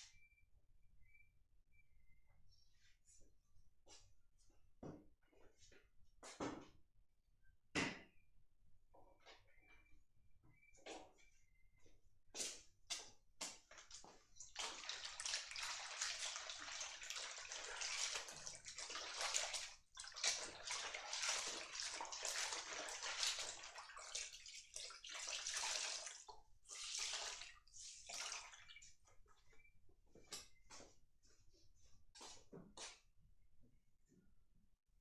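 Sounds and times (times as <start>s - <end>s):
water sloshing in metal basin: 13.7s - 28.9s.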